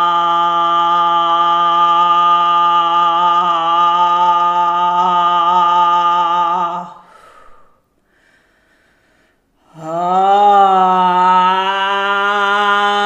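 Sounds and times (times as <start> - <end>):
soft breath: 6.9 - 9.8.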